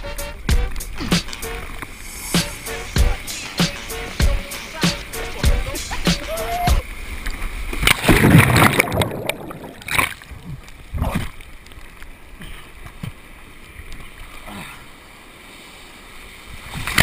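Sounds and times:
surf rushing and splashing: 0.0s - 17.0s
sharp water splashes: 0.5s - 12.1s
water sloshing: 0.6s - 15.8s.

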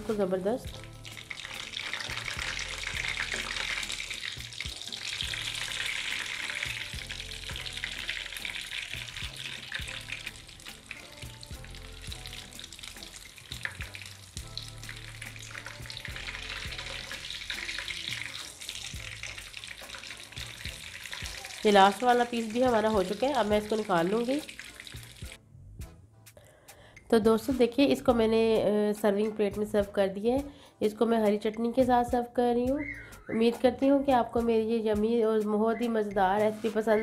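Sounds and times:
food frying in hot oil: 0.7s - 25.4s.

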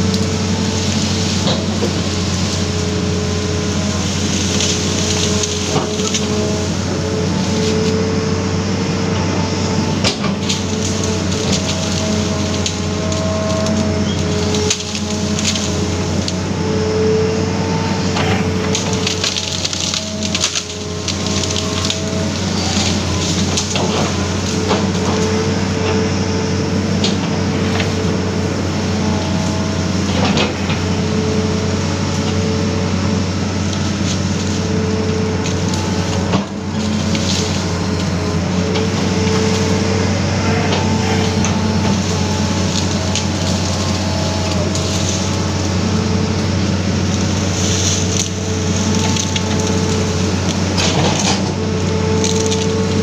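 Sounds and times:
excavator engine running: 0.0s - 53.0s
hydraulic whine: 0.0s - 53.0s
wood cracking and snapping: 0.1s - 6.8s, 10.0s - 16.4s, 18.2s - 25.4s, 33.5s - 39.8s, 40.6s - 53.0s.

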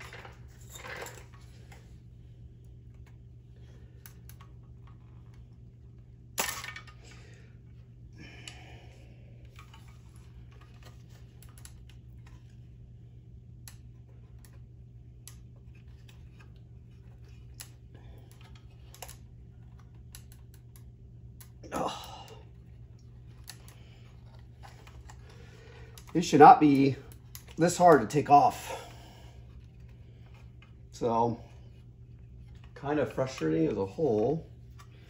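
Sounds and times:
steady low hum: 0.0s - 35.0s
metal tool clicking on connectors: 17.6s - 21.6s.

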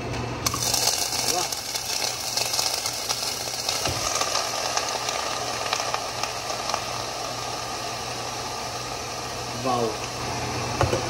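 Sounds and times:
food sizzling in hot oil: 0.4s - 11.0s.

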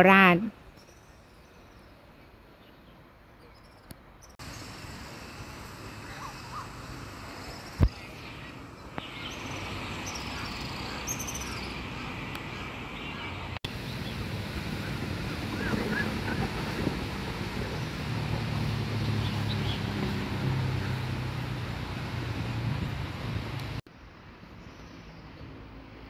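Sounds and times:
outdoor background noise: 0.0s - 26.0s
small birds chirping: 7.3s - 14.2s.

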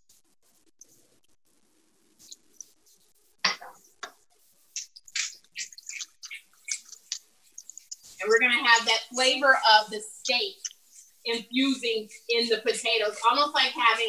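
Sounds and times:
oil crackling and popping: 4.8s - 9.0s.

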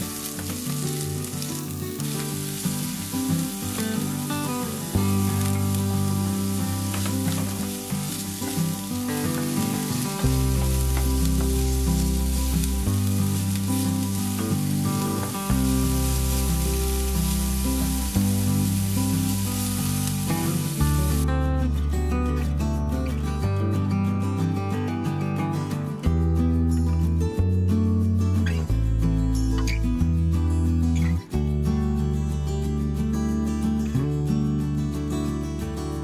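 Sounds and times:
onions sizzling in hot oil: 0.0s - 21.3s
background music with slow bass: 0.0s - 36.0s.

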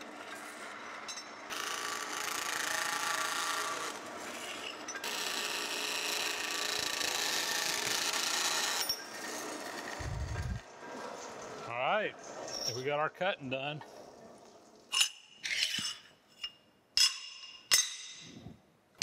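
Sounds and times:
band saw cutting steel: 1.5s - 10.6s.

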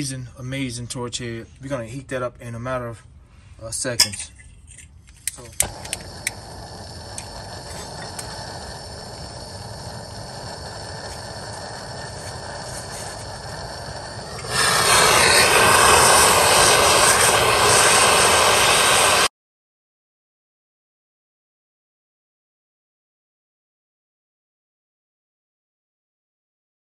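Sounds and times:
gas torch flame hissing: 5.1s - 19.3s.

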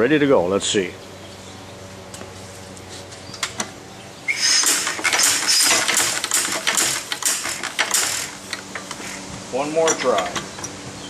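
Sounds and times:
engine flywheel metallic clattering: 3.3s - 11.0s.

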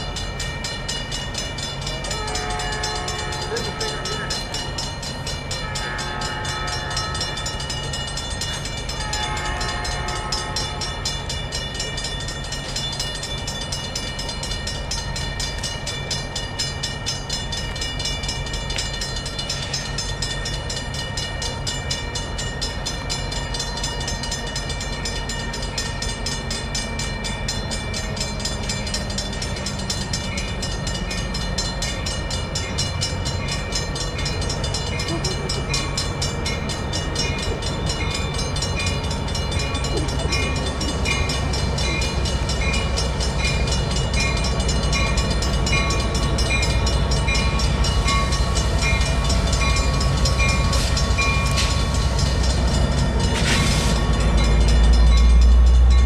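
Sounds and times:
bell ringing rapidly: 0.0s - 56.0s
train engine rumble: 0.0s - 56.0s.

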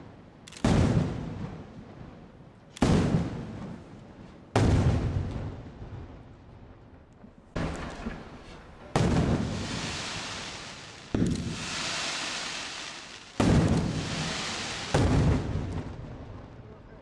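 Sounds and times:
firework shells bursting: 7.6s - 16.0s.

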